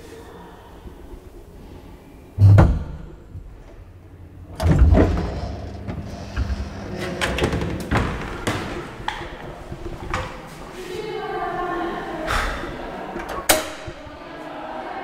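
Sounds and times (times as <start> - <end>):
heavy elevator thump: 2.4 - 9.9
elevator door sliding open: 2.4 - 10.8.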